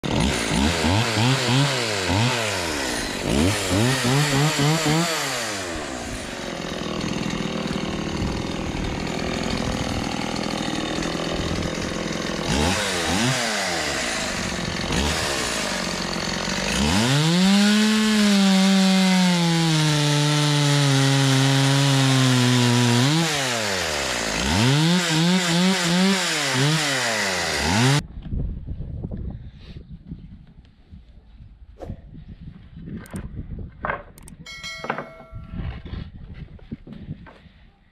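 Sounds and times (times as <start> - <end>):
chainsaw revving: 0.0 - 28.0.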